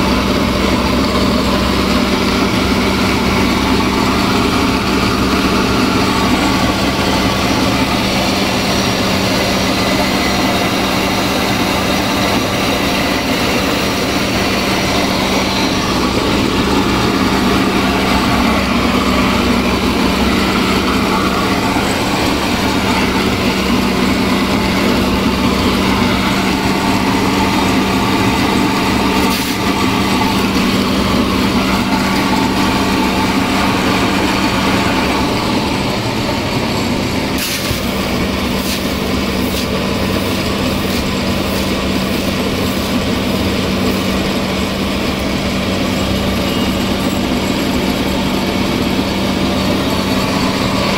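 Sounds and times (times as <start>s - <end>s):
flour mill humming: 0.0s - 50.9s.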